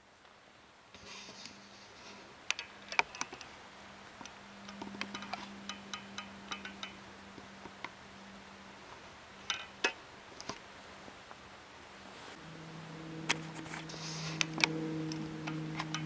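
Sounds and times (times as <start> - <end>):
faint low hum: 0.0 - 16.0
faint scattered clicks and ticks: 1.0 - 8.0, 13.2 - 16.0.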